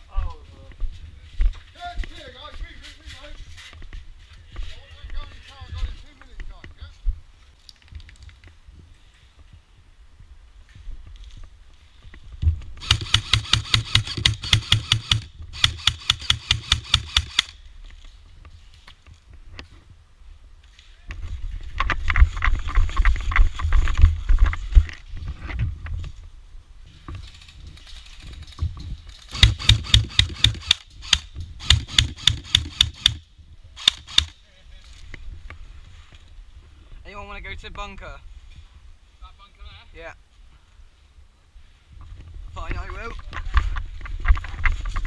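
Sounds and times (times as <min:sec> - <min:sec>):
airsoft gun firing rapid shots: 0:12.8 - 0:17.5, 0:29.3 - 0:33.2, 0:33.8 - 0:34.4
rustling from running: 0:20.7 - 0:30.7.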